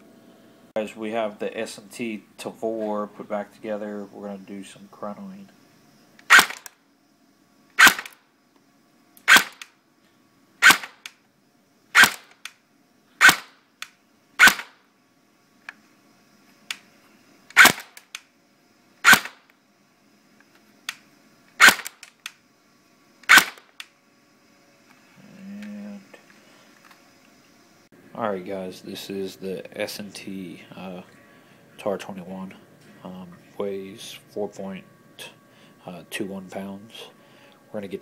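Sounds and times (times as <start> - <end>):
airsoft gun shots: 6.3 - 6.7, 7.8 - 8.2, 9.3 - 9.7, 10.6 - 11.1, 12.0 - 12.4, 13.2 - 13.6, 14.4 - 14.8, 17.6 - 18.0, 19.0 - 19.4, 21.6 - 22.0, 23.3 - 23.7.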